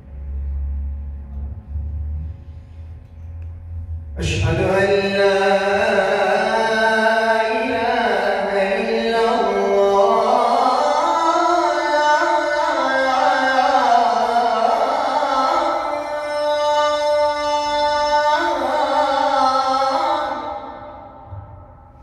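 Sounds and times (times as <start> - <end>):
man singing call to prayer: 4.2 - 21.3.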